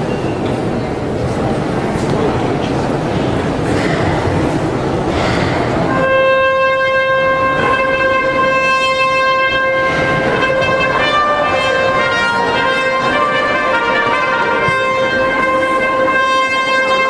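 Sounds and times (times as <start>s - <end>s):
background noise: 0.0s - 17.0s
trumpet playing long notes: 5.9s - 17.0s.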